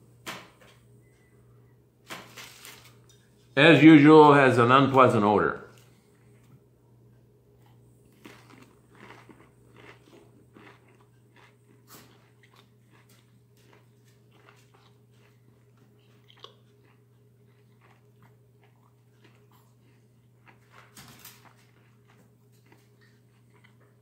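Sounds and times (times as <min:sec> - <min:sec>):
low steady hum: 0:00.0 - 0:24.0
man chewing food: 0:05.7 - 0:24.0.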